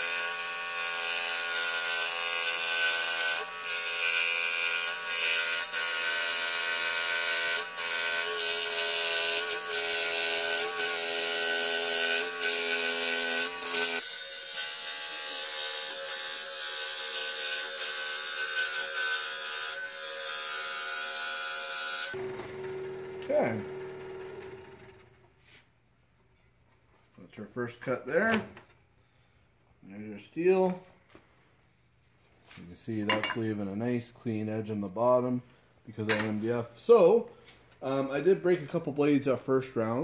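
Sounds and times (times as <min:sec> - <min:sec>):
scroll saw cutting thin steel: 0:00.0 - 0:22.2.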